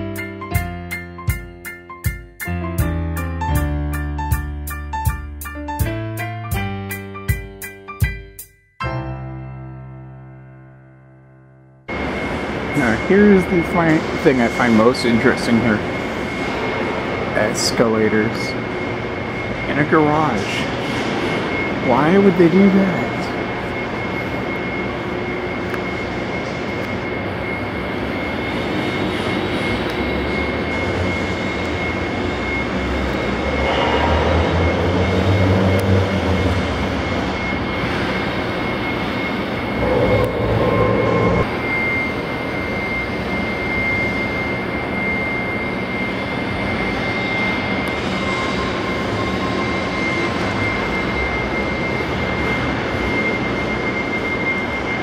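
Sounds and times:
mechanical drone: 11.8 - 55.0
high-pitched whine: 11.9 - 55.0
deep rumble: 33.2 - 37.7, 39.7 - 41.5.

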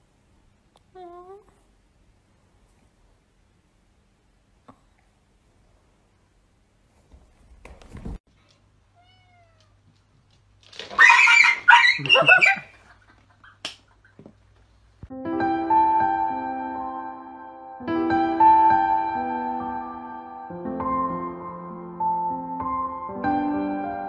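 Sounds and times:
cats meowing and yowling: 9.0 - 9.8, 10.9 - 12.7
soft piano tune: 15.1 - 24.0.

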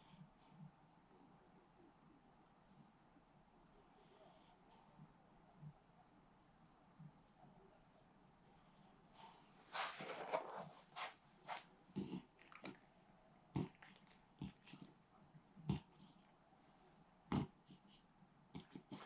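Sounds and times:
dog snorts and snuffles: 9.2 - 12.8, 13.5 - 15.0, 17.3 - 19.0
dog snoring: 12.0 - 12.9.

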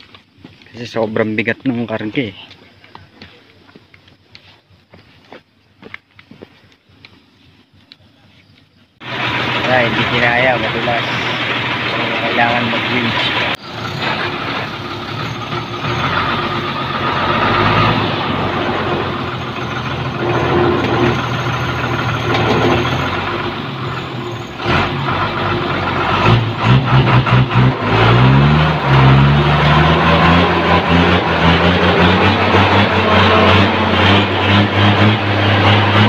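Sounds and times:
truck engine idling and revving: 9.0 - 36.0.

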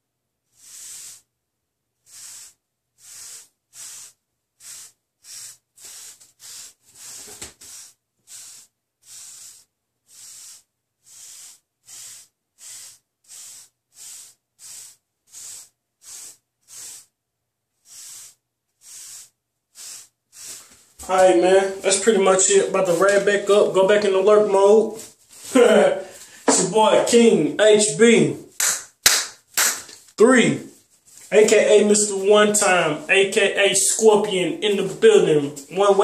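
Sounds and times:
brush bristles swishing over hair: 17.8 - 27.2.

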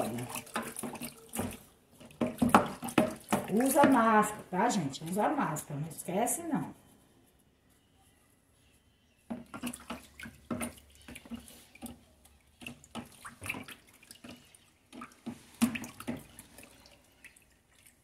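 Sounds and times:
stick knocking against plastic tub: 0.0 - 4.4
liquid sloshing: 0.0 - 5.7, 9.3 - 18.0.

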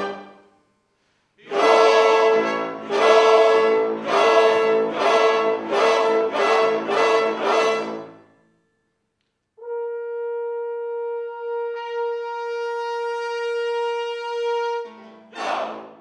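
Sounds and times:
wind instrument long note: 9.6 - 16.0.

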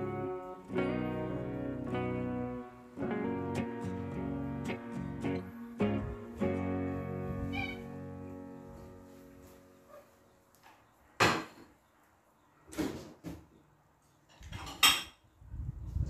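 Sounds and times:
string music: 0.0 - 9.5
cat meowing: 7.4 - 8.0.

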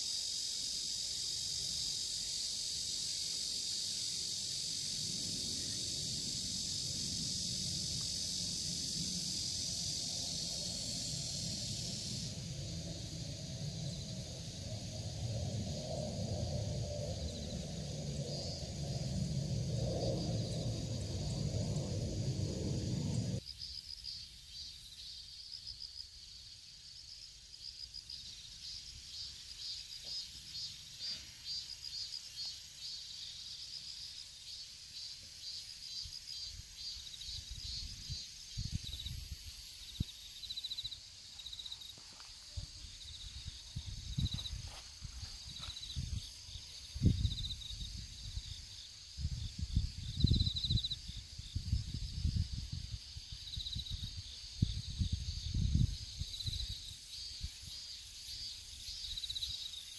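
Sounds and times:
short high insect trills: 0.0 - 26.4
crickets chirping: 0.0 - 59.9
low rumbles: 10.3 - 23.4.

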